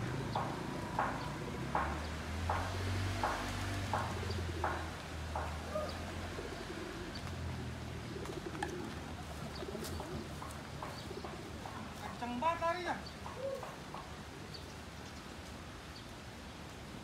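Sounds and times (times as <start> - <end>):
bird cooing and hooting: 4.1 - 4.8, 5.5 - 7.2, 8.0 - 10.3, 13.3 - 13.8.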